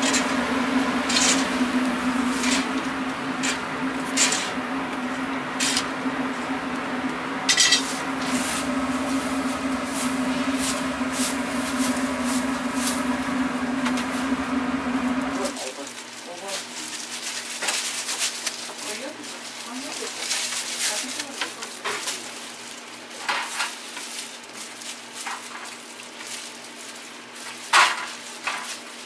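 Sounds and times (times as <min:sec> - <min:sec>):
low machine hum: 0:00.0 - 0:17.2.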